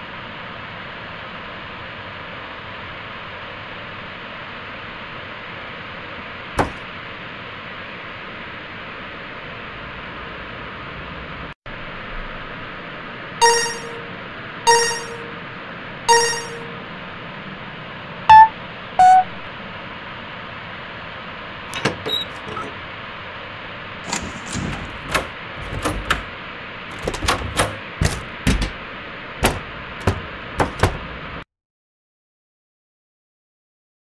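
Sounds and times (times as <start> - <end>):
elevator chime: 6.6 - 6.8, 13.4 - 15.5, 16.1 - 16.9, 18.3 - 19.5, 21.8 - 22.7, 24.2 - 26.3, 26.9 - 28.8, 29.4 - 31.0
elevator clunks and knocks: 6.6 - 6.9, 13.4 - 14.1, 14.7 - 15.4, 16.1 - 16.7, 18.3 - 19.3, 21.8 - 22.8, 24.1 - 31.2
short loud beeps: 13.4 - 15.5, 16.1 - 16.9, 18.3 - 19.5.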